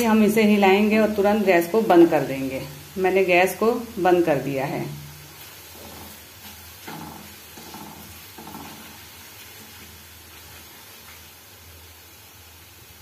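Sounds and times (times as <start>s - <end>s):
oil sizzling in a pan: 0.0s - 13.0s
spoon scraping a pan: 5.3s - 10.8s.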